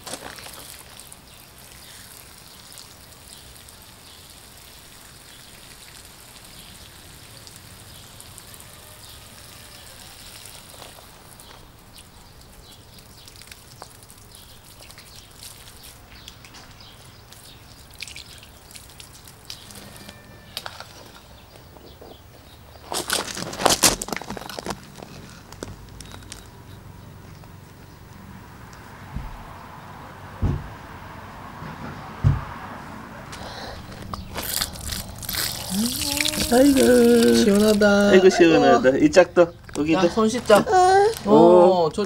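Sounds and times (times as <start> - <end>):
water spraying onto grass and gravel: 0.0 - 21.5, 33.4 - 38.8.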